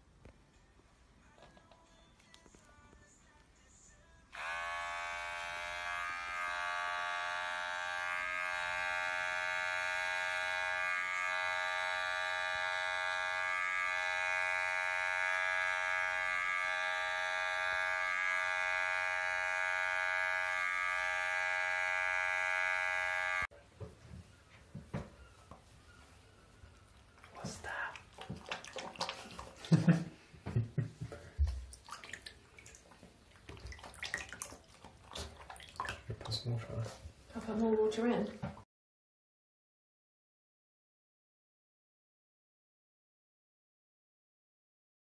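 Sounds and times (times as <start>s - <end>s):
electric hair clippers buzzing: 4.3s - 23.5s.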